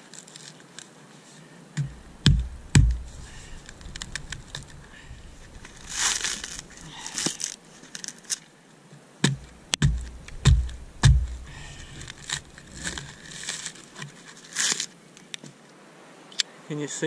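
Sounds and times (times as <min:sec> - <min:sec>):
coconut slammed onto stick: 0:01.8 - 0:03.1, 0:09.2 - 0:11.5
husk fibres cracking and tearing: 0:02.3 - 0:08.5, 0:09.7 - 0:15.4.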